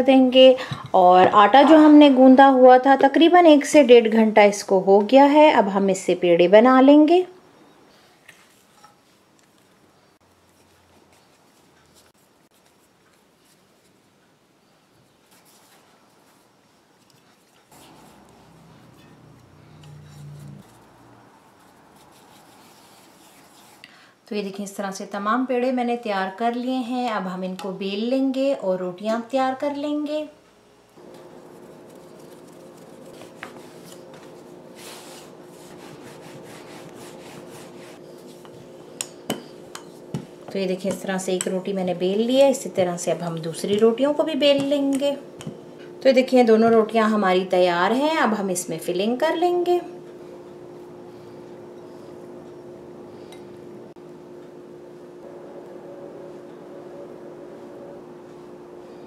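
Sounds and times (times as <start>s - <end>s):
steady low hum: 16.2s - 24.4s, 29.7s - 59.0s
hands rubbing dough in flour: 17.1s - 18.7s, 20.1s - 23.8s, 31.2s - 40.4s
rolling pin on cutting board: 31.3s - 38.7s.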